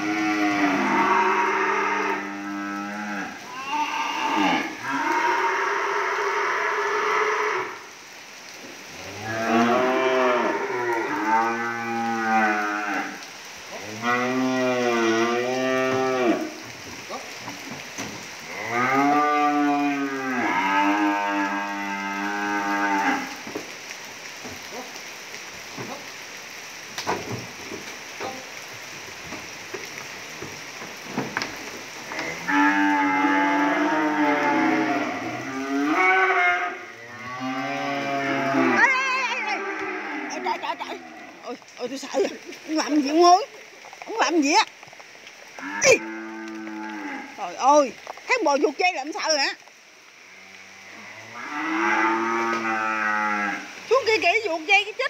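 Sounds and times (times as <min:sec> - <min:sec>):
cattle mooing: 0:00.0 - 0:07.8, 0:09.0 - 0:13.2, 0:13.8 - 0:16.5, 0:18.5 - 0:23.4, 0:32.1 - 0:41.6, 0:45.6 - 0:47.7, 0:50.3 - 0:53.7.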